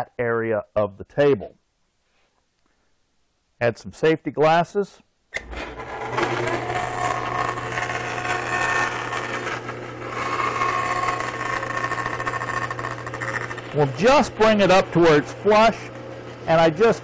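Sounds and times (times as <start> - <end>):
bandsaw cutting board: 5.4 - 17.0.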